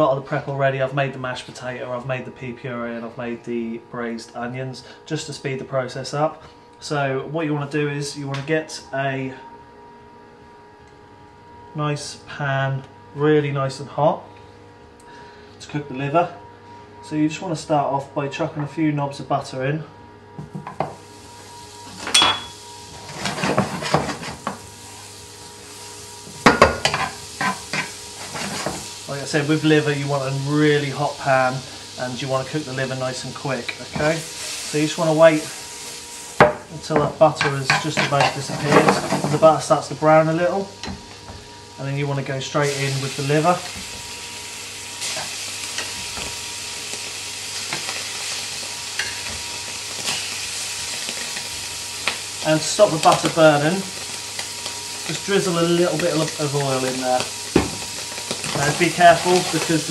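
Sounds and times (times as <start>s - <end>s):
butter sizzling in frying pan: 20.9s - 41.9s, 42.5s - 59.9s.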